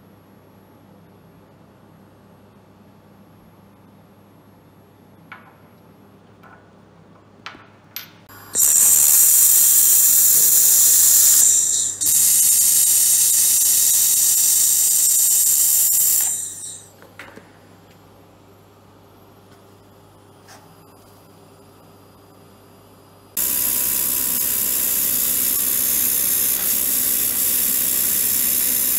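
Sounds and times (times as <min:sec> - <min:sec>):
laser welder hiss: 0:08.3 - 0:16.9, 0:23.4 - 0:28.9.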